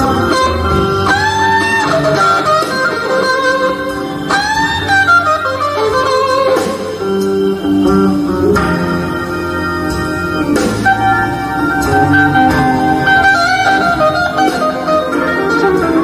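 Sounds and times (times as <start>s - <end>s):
electric blues band playing: 0.0s - 16.0s
electric guitar solo: 0.0s - 16.0s.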